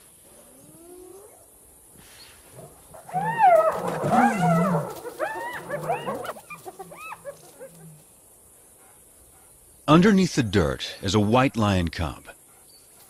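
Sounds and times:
hyenas yelping: 2.6s - 8.1s.

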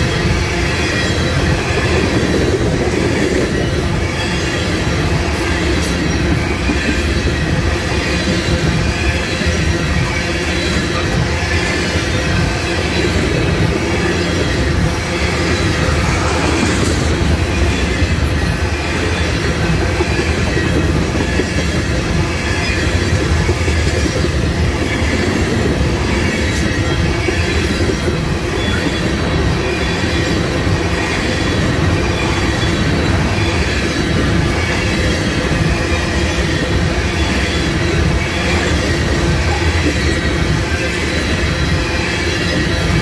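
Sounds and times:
train wheels rumbling on rails: 0.0s - 43.0s
wheel squeal: 0.0s - 43.0s.

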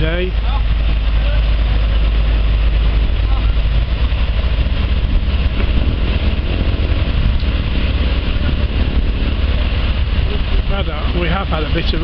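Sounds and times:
engine idling: 0.0s - 12.0s.

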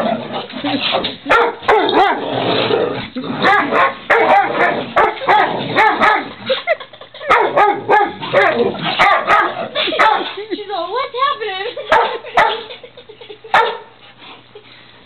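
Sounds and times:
dogs barking and yipping: 0.0s - 2.2s, 3.4s - 10.4s, 11.8s - 14.0s.

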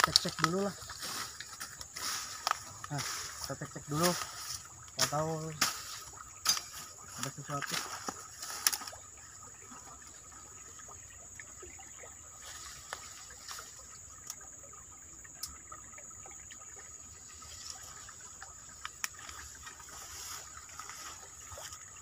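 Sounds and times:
bamboo stems snapping underfoot: 0.0s - 6.9s, 7.5s - 9.0s, 18.7s - 21.2s
steady high hiss: 0.0s - 9.0s.

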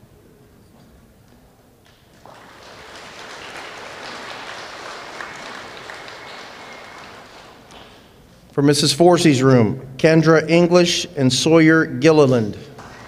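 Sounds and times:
audience applauding: 1.9s - 8.2s.

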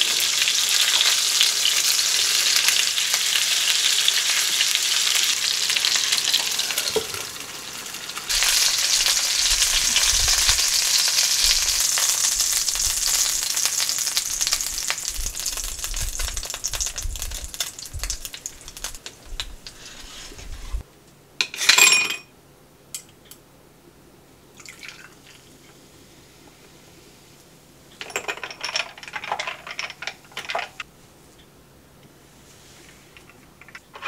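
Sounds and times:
fish sizzling in a frying pan: 0.0s - 19.0s
drink pouring into a glass: 24.6s - 25.4s.

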